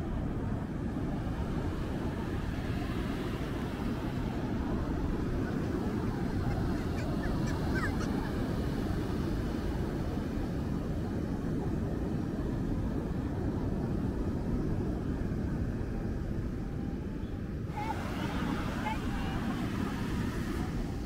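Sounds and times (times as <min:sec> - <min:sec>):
ocean surf breaking: 0:00.8 - 0:10.5, 0:17.7 - 0:21.0.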